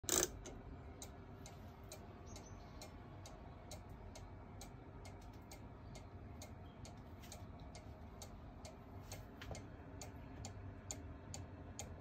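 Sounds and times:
cuckoo clock ticking: 0:00.0 - 0:12.0.

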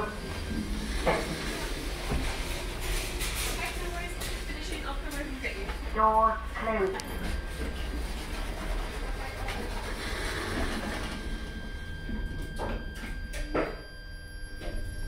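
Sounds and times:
lift motor whine: 0:09.9 - 0:15.0.

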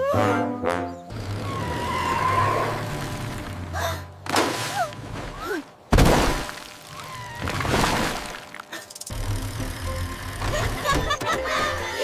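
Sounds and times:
background music: 0:00.0 - 0:01.2, 0:09.1 - 0:12.0.

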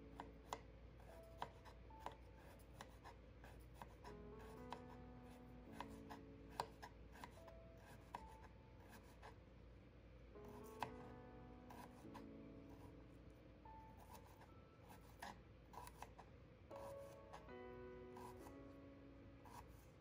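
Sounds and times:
soft background music: 0:00.0 - 0:20.0
knife tapping cutting board: 0:10.7 - 0:11.0.

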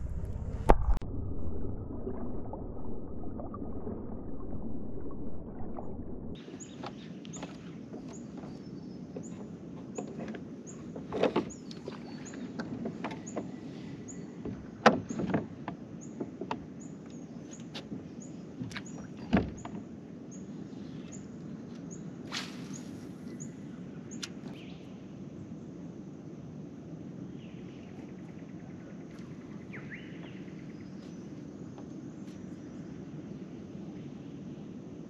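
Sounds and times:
steady low hum: 0:00.0 - 0:07.9
knocks and splashy thuds on boat: 0:06.6 - 0:16.9, 0:17.7 - 0:20.0.

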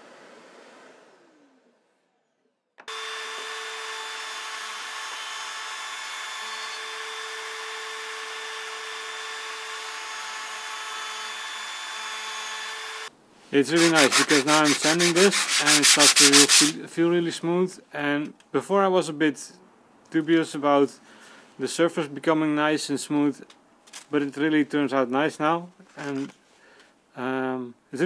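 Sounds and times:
electric sander on wood: 0:00.0 - 0:01.9, 0:02.8 - 0:13.1, 0:13.7 - 0:16.8
motor hum: 0:00.0 - 0:13.1.

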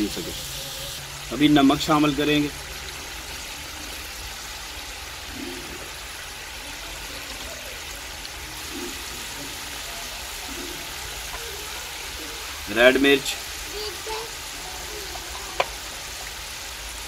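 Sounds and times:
fruit sizzling in hot oil: 0:00.0 - 0:17.0.

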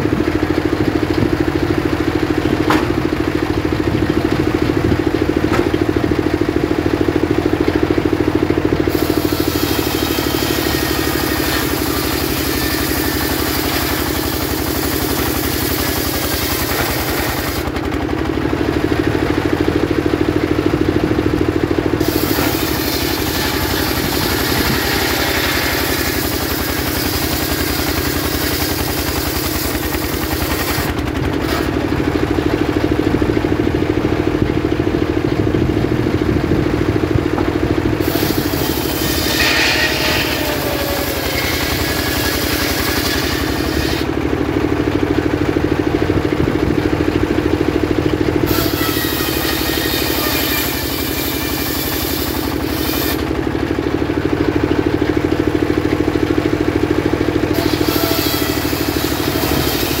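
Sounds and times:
saw blade cutting log: 0:00.0 - 0:07.9, 0:08.5 - 0:18.0, 0:20.6 - 0:32.2, 0:37.4 - 0:44.2, 0:48.0 - 0:54.0, 0:55.0 - 1:00.0
sawmill engine running: 0:00.0 - 1:00.0.

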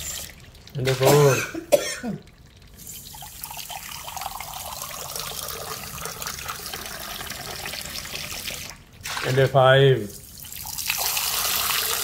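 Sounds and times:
water pouring into a ceramic cup: 0:02.2 - 0:09.4, 0:10.1 - 0:12.0.

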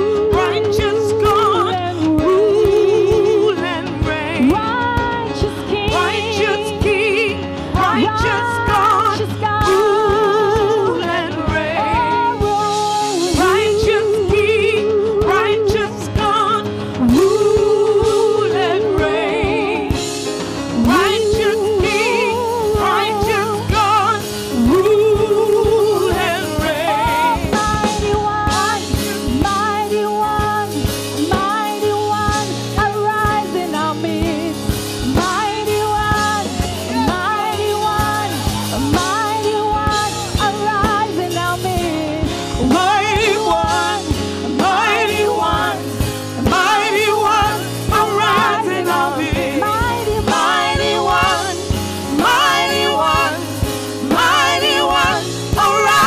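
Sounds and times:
band with drum kit and cymbals: 0:00.0 - 0:56.0
woman singing into microphone: 0:00.0 - 0:56.0
voices singing harmony: 0:20.9 - 0:29.5, 0:42.6 - 0:56.0.

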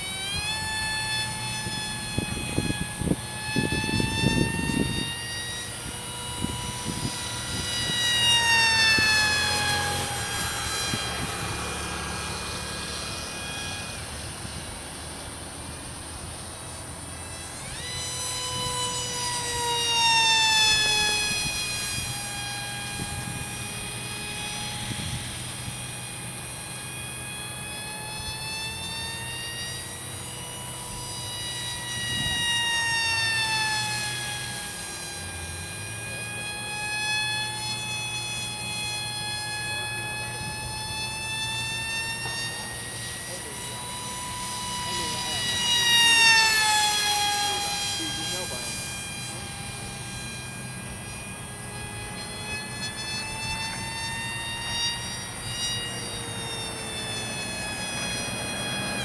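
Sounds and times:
model plane propeller whining: 0:00.0 - 0:59.0
wind buffeting microphone: 0:01.4 - 0:12.6.

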